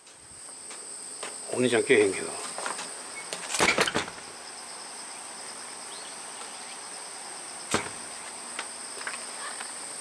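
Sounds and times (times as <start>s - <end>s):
insects chirring: 0.0s - 10.0s
sharp knock: 7.7s - 8.0s.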